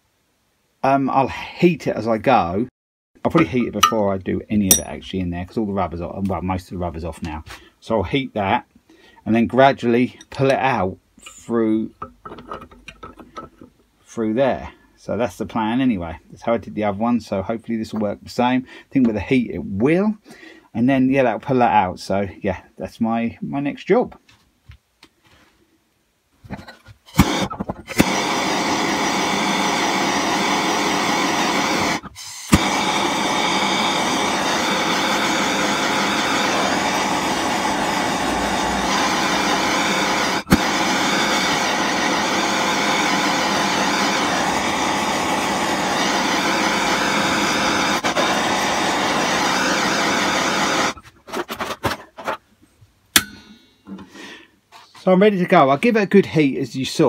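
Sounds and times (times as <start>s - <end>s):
gas torch burning: 27.1s - 51.0s.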